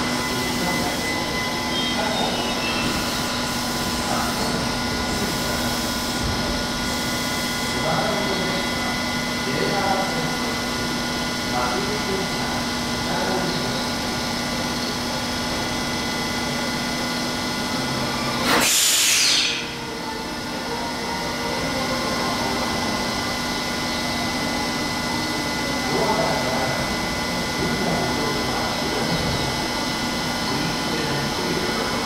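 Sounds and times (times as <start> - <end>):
train electrical equipment whine: 0.0 - 32.0
loud hiss: 18.4 - 19.8.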